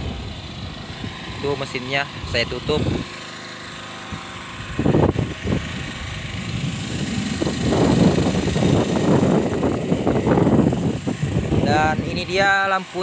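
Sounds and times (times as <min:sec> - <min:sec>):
small generator engine hum: 0:00.0 - 0:13.0.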